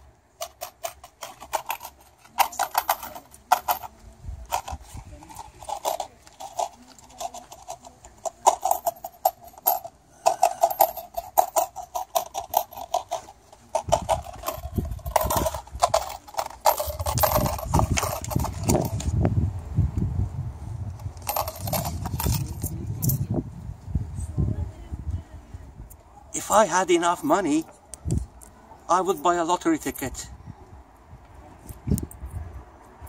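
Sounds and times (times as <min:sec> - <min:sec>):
coins clinking: 0:00.4 - 0:19.1, 0:21.2 - 0:23.2.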